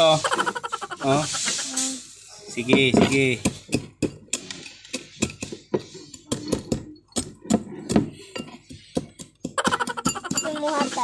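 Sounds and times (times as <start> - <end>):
pestle pounding in glass jar: 2.7 - 11.0.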